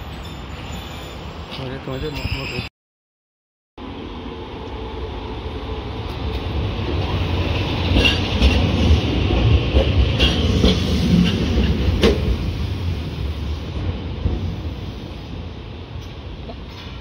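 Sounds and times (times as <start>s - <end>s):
tram motor and wheels rumbling: 3.8s - 17.0s.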